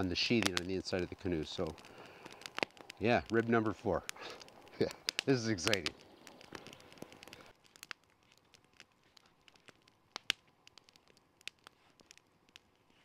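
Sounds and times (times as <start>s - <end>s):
campfire crackling: 0.0s - 13.0s
sharp fire pop: 4.0s - 7.9s.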